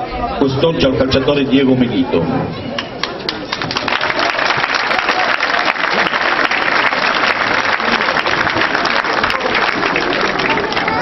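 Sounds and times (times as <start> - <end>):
crowd applauding: 2.8 - 11.0.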